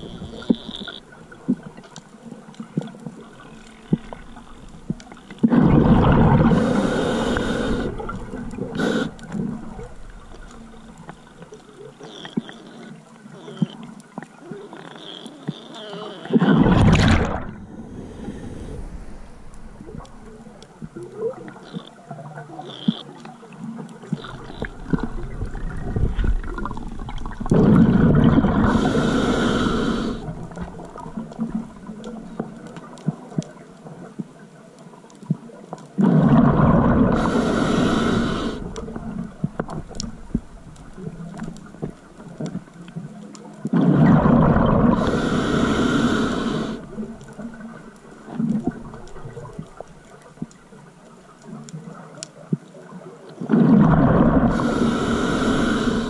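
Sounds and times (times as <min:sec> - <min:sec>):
regulator bubbling underwater: 0:03.2 - 0:11.6, 0:16.3 - 0:23.2, 0:24.1 - 0:33.3, 0:36.0 - 0:42.7, 0:43.7 - 0:50.5, 0:53.4 - 0:56.0.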